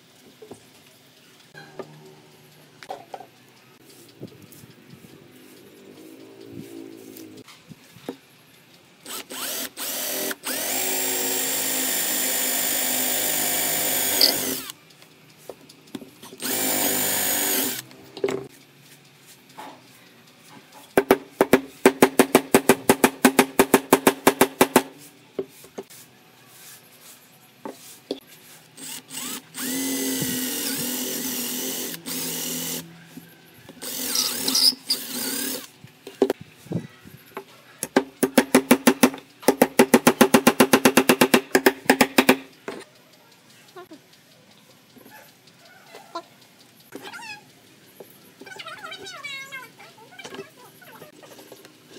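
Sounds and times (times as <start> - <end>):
cordless drill boring into wood: 9.0 - 14.7, 16.4 - 17.8, 28.8 - 32.8, 33.8 - 35.7.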